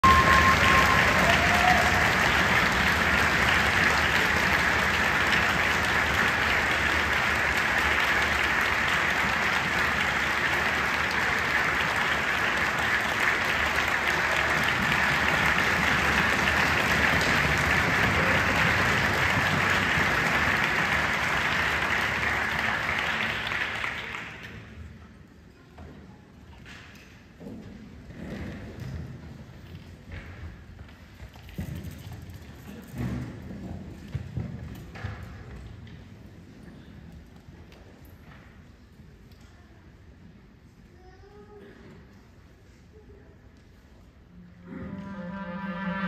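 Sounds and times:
audience applauding: 0.0 - 24.7.

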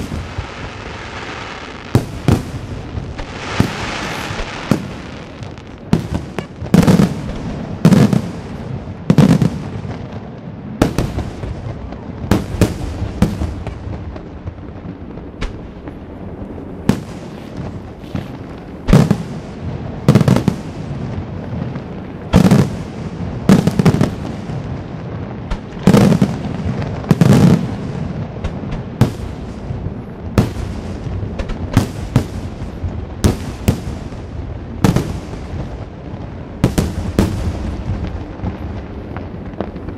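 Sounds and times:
firework shells bursting: 3.1 - 7.4.

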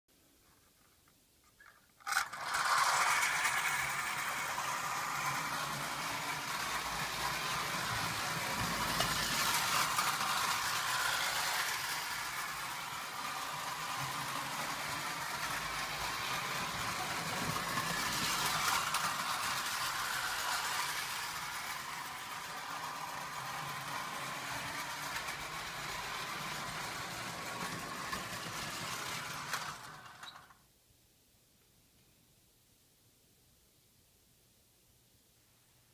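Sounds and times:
toy train wheels clattering: 1.6 - 30.6
clockwork motor whirring: 2.0 - 30.5.

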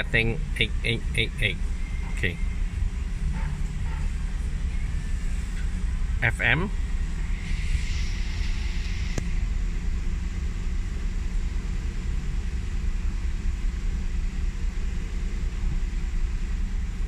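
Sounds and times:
car engine idling: 0.0 - 17.0
faint hiss: 5.2 - 11.2.

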